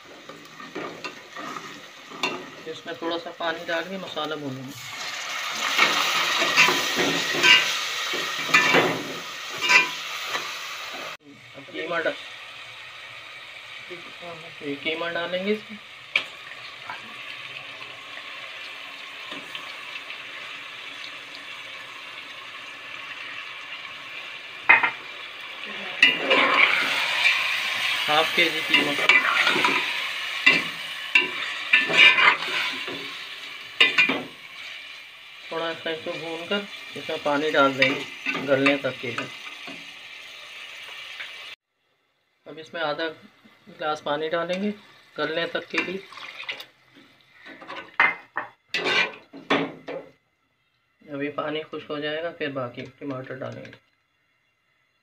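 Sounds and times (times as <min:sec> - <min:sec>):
masala sizzling in oil: 0:00.0 - 0:55.0
spatula scraping and stirring pot: 0:00.2 - 0:02.6, 0:05.7 - 0:10.5, 0:25.9 - 0:34.8, 0:45.7 - 0:48.0, 0:48.7 - 0:49.5
metal spoon scraping meat in pot: 0:28.6 - 0:33.1, 0:48.8 - 0:49.3.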